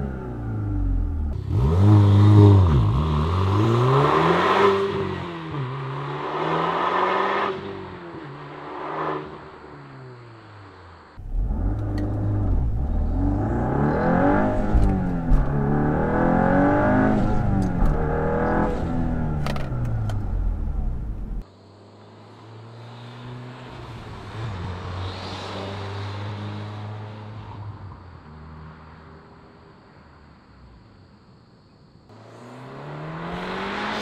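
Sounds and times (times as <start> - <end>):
car engine accelerating: 0.0 - 21.4, 32.1 - 34.0
car driving away: 0.0 - 29.4, 32.1 - 34.0
exhaust cracks: 11.2 - 21.4.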